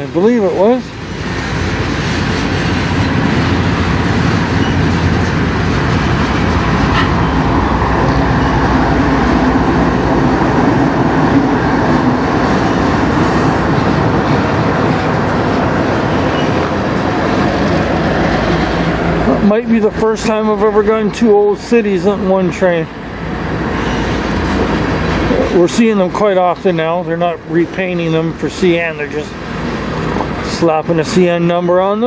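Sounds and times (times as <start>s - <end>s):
freight train wheels on rails: 0.0s - 32.0s.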